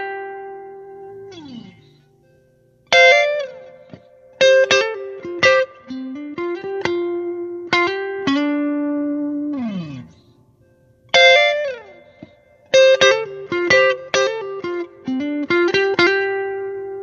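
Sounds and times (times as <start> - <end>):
plucked guitar music: 0.0 - 17.0.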